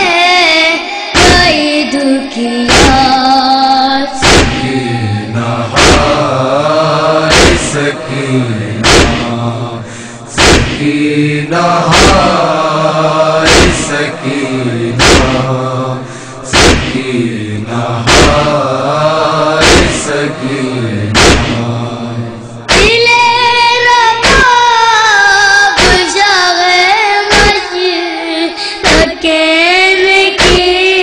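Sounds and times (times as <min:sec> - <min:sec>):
voices chanting a lament: 0:00.0 - 0:31.0
chest-beating slaps: 0:01.2 - 0:01.6, 0:02.7 - 0:03.2, 0:04.2 - 0:04.8, 0:05.7 - 0:06.4, 0:07.2 - 0:08.0, 0:08.8 - 0:11.0, 0:11.8 - 0:12.6, 0:13.3 - 0:15.6, 0:16.5 - 0:17.2, 0:18.0 - 0:18.8, 0:19.6 - 0:20.3, 0:21.1 - 0:21.8, 0:22.7 - 0:23.0, 0:24.2 - 0:24.5, 0:25.8 - 0:26.2, 0:27.3 - 0:27.6, 0:28.8 - 0:29.2, 0:30.4 - 0:30.8.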